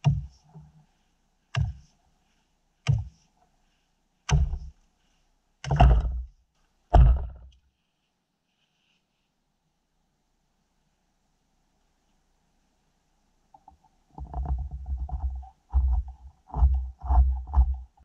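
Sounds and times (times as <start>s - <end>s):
axe chopping into log: 0.0s - 0.4s, 1.6s - 1.9s, 2.9s - 3.1s, 4.3s - 4.7s, 5.6s - 6.2s, 6.9s - 7.4s.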